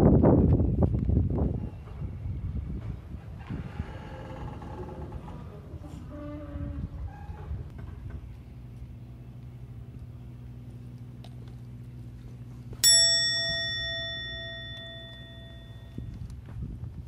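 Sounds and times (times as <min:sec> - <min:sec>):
steady low hum: 0:00.0 - 0:17.0
bell-like ding: 0:12.8 - 0:16.1.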